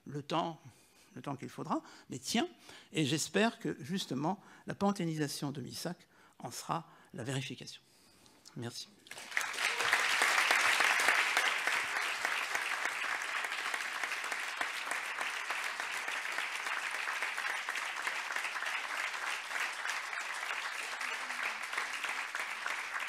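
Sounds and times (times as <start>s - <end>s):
audience applauding: 9.1s - 23.0s.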